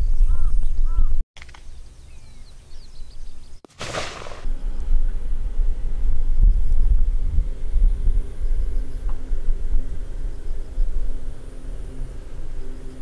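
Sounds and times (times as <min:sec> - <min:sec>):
blank gunshot: 0:03.7 - 0:04.5
wind rumbling on microphone: 0:03.9 - 0:11.4.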